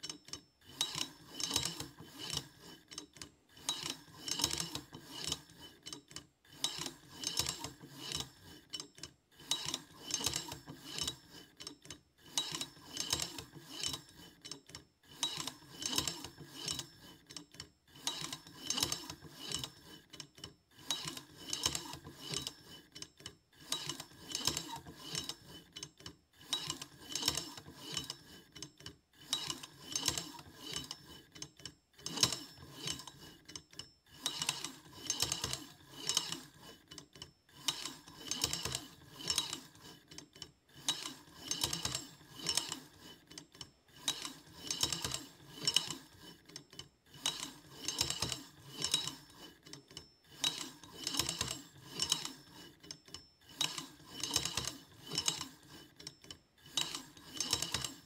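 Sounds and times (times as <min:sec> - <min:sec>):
lock wheels clicking and rubbing: 0:56.8 - 0:58.0.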